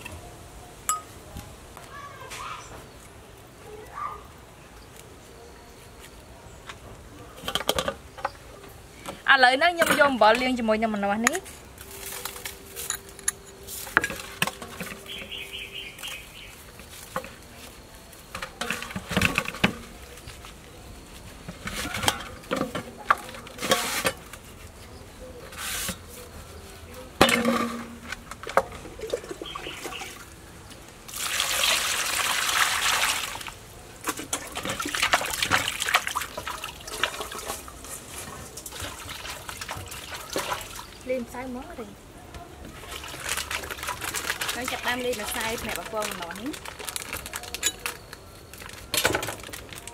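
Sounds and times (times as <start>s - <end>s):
knocks and clicks in metal basin: 7.4s - 8.4s, 18.3s - 20.0s, 27.2s - 30.0s
water sloshing and squelching: 27.2s - 30.3s, 31.1s - 41.2s, 42.7s - 47.1s
water splashing: 31.1s - 37.8s, 38.6s - 41.0s, 42.7s - 46.2s.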